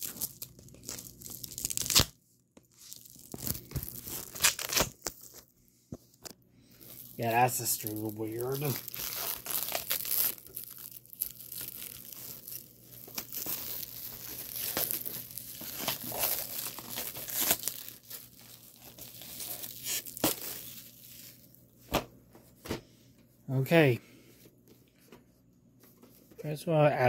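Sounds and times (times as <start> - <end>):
plastic wrapping crinkling and tearing: 0.0 - 5.5, 6.1 - 21.6.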